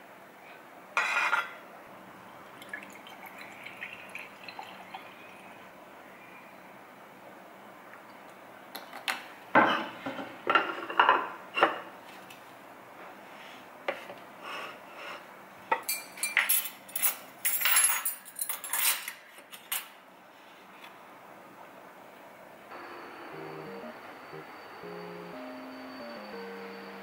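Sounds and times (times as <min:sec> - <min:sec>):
metal cutlery clinking: 0:15.8 - 0:19.9.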